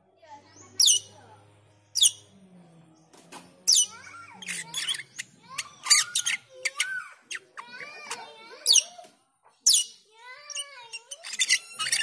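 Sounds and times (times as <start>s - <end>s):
bird chattering notes: 0.8s - 1.1s, 3.7s - 8.9s, 9.7s - 12.0s.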